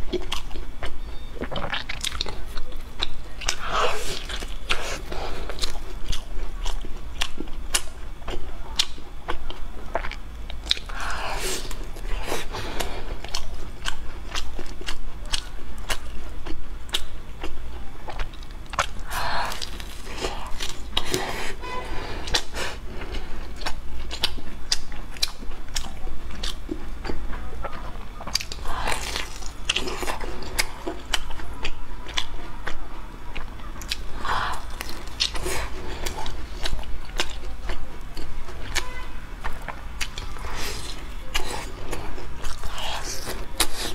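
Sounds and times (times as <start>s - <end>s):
crunchy bread being chewed: 0.0s - 43.9s.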